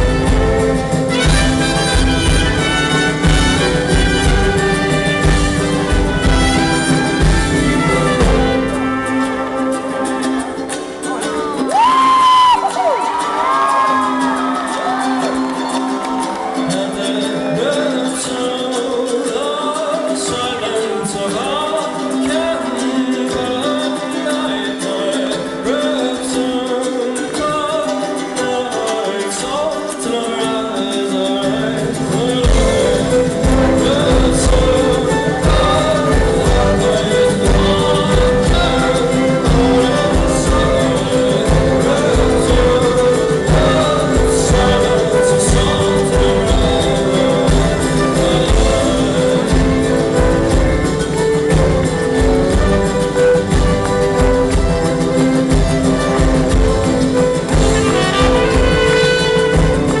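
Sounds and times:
brass horns playing: 0.0 - 10.8, 32.5 - 60.0
strummed ukulele and mandolin: 0.0 - 60.0.

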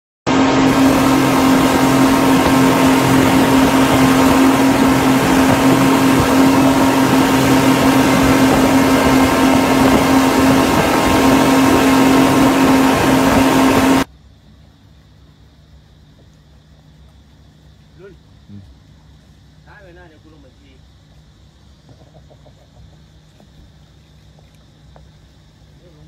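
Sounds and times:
water rushing: 0.3 - 14.1
outboard motors droning: 0.3 - 26.0
wind: 0.3 - 26.0.

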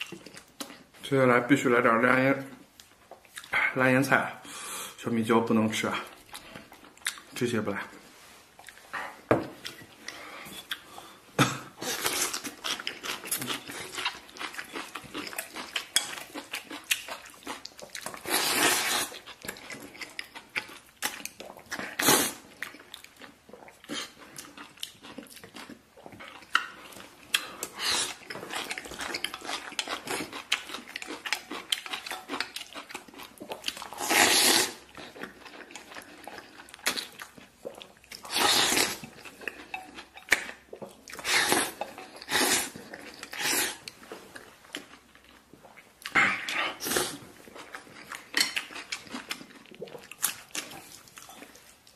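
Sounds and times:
person slurping noodles: 18.2 - 19.2, 27.7 - 28.2, 33.9 - 34.8, 38.2 - 39.0, 41.2 - 43.8, 46.1 - 47.2.

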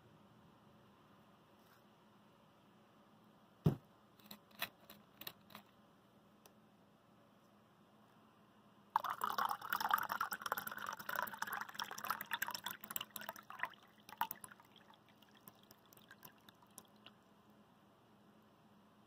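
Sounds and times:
water pouring into metal cup: 9.0 - 17.1
water dripping: 9.0 - 17.2.

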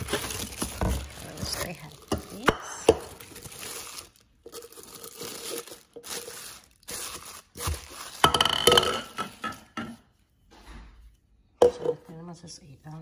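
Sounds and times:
cellophane crinkling and tearing: 0.0 - 8.7
plastic cup clattering: 4.4 - 9.9.

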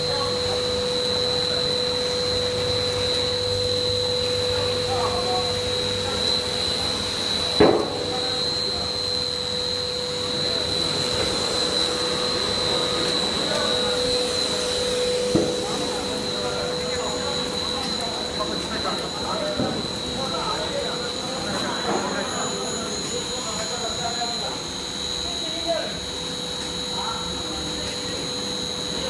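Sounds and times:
machine drone with high whine: 0.0 - 29.0
sharp knock: 7.6 - 8.0.

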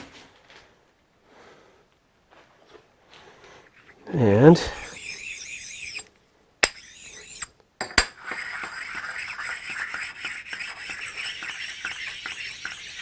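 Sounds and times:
stone scraping on metal table: 4.6 - 13.0.

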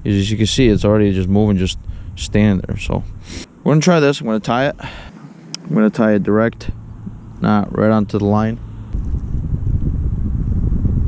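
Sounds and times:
wind blowing on microphone: 0.0 - 3.4, 8.2 - 11.0.

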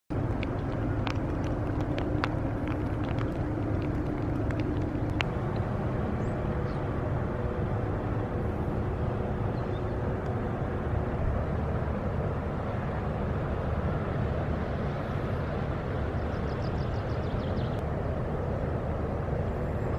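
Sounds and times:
sharp ticks: 0.1 - 5.7
distant engines rumbling: 0.1 - 19.9
faint steady hum: 0.1 - 19.9
wind: 0.1 - 19.9.

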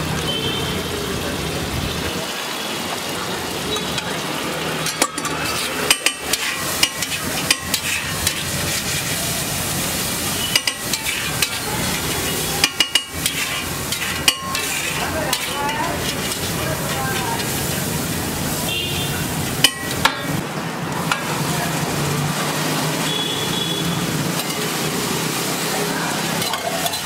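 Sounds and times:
food sizzling on griddle: 0.0 - 27.0
metal spatula clacking on griddle: 4.8 - 9.1, 10.4 - 17.6, 19.6 - 20.4, 24.3 - 24.8, 26.3 - 27.0.

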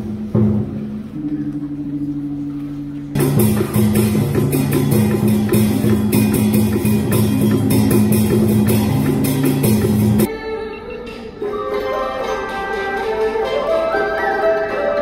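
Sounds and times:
sustained low notes: 0.0 - 4.6
fast drum and percussion: 3.2 - 10.3.

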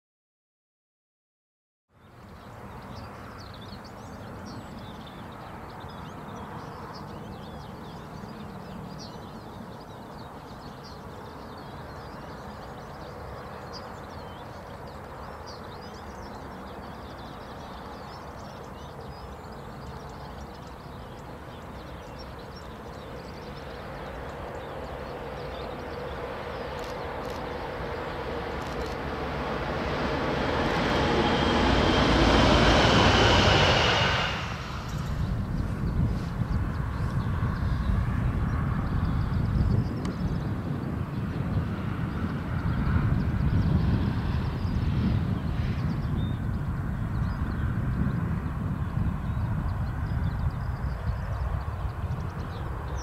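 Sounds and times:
birds chirping: 2.0 - 47.7
electric locomotive hum: 26.0 - 36.2.

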